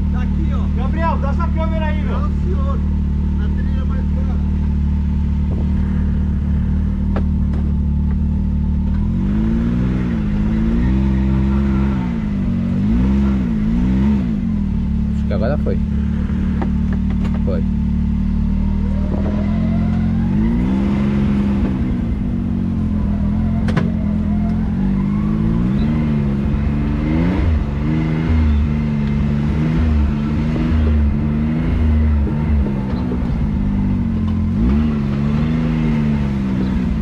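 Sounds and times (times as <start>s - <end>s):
utility vehicle engine revving: 0.0s - 37.0s.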